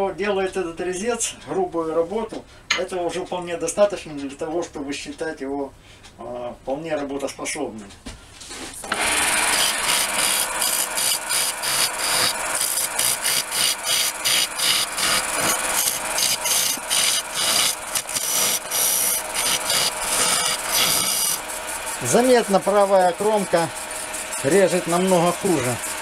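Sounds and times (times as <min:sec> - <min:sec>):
lathe cutter scraping wood: 0:08.8 - 0:26.0.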